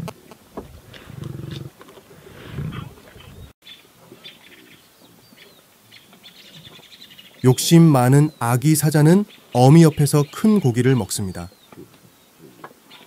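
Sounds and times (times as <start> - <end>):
lion cubs growling: 0.7 - 4.8.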